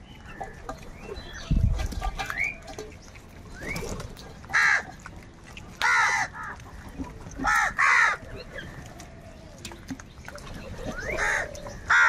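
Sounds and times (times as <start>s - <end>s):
crows cawing: 4.5s - 4.9s, 5.8s - 6.6s, 7.4s - 8.2s, 11.2s - 12.0s.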